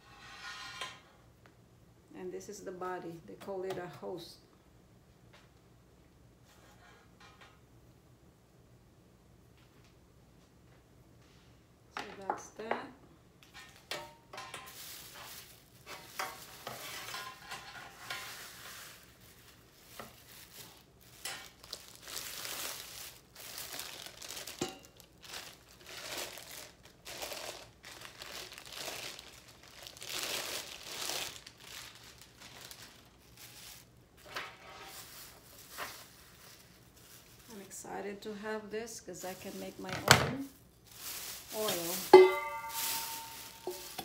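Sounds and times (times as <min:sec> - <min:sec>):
plastic wrapping crinkling: 0:13.4 - 0:37.8, 0:39.1 - 0:44.0.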